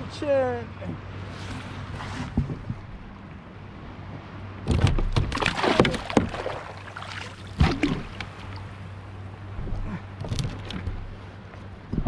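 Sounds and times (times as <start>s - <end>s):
steady low hum: 0.0s - 12.0s
water splashing around kayak: 4.6s - 9.3s.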